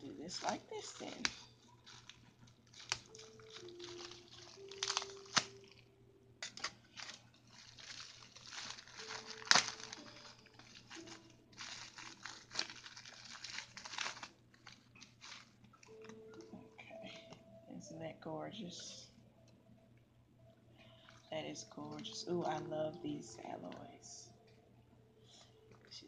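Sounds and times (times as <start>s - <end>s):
plastic wrapping crinkling: 0.0s - 17.4s, 20.8s - 24.1s
sharp plastic crackle: 0.1s - 17.4s, 20.8s - 23.8s.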